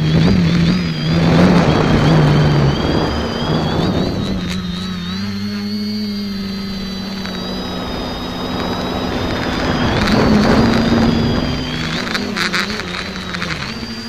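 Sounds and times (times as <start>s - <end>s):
drone motors whining: 0.0s - 14.0s
rushing wind and propeller noise: 0.0s - 14.0s.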